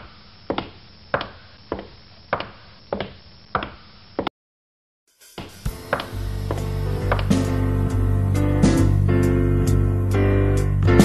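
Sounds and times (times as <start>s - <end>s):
footsteps walking: 0.5s - 4.3s
music: 5.1s - 11.0s.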